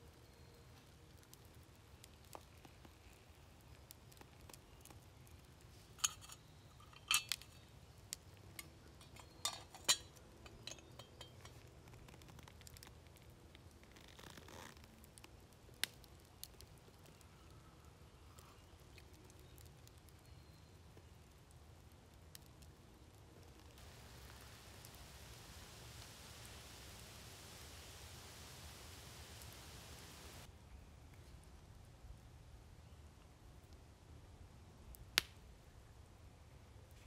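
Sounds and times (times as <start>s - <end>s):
metal kettle and cup clinking: 6.0s - 7.6s, 9.0s - 11.6s.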